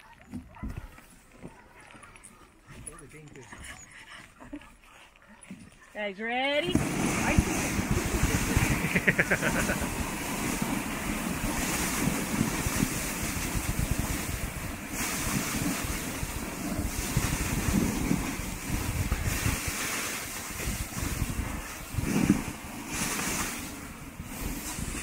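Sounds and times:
wind buffeting microphone: 0:06.6 - 0:25.0
sled runners hissing on snow: 0:06.7 - 0:25.0.

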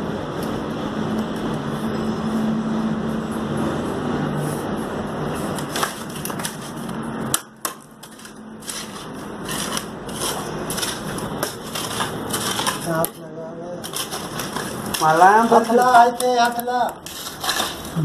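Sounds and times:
mortar crunching and scraping: 0:05.3 - 0:18.0.

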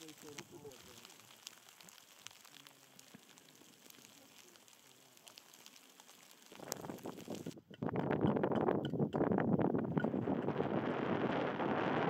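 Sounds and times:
snow pattering on tent fabric: 0:00.0 - 0:07.6.

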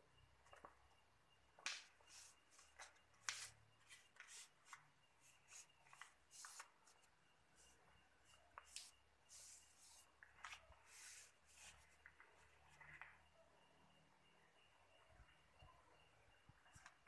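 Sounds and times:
paper rustling and crinkling: 0:08.6 - 0:13.2.

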